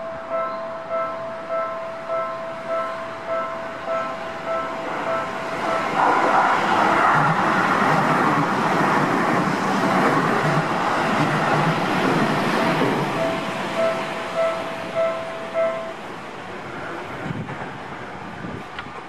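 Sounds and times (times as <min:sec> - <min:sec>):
level crossing warning bell: 0:00.0 - 0:06.5, 0:09.9 - 0:16.5
train wheels rumbling on rail: 0:02.8 - 0:19.0.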